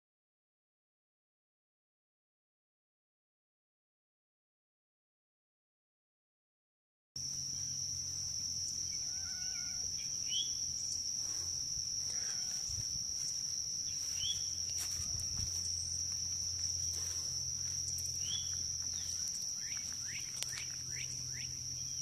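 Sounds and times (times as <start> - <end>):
insect chorus droning: 7.2 - 22.0
bird chirps: 8.8 - 11.0, 13.8 - 16.1, 17.8 - 22.0.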